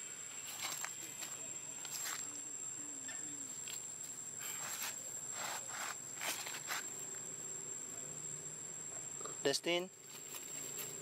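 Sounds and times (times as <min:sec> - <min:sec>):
insects droning: 0:00.0 - 0:11.0
rustling in dry leaves: 0:04.4 - 0:07.1, 0:10.0 - 0:11.0.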